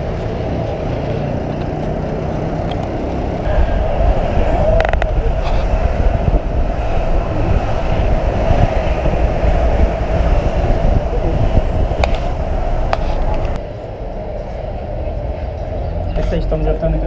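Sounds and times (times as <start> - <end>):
road traffic rumble on bridge: 0.0 - 17.0.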